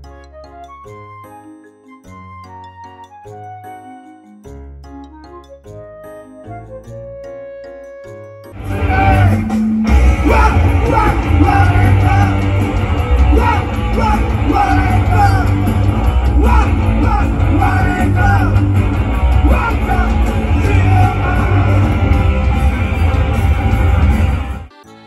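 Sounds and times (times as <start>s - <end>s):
singer shouting and singing: 8.6s - 22.4s
punk rock band playing live: 8.6s - 24.8s.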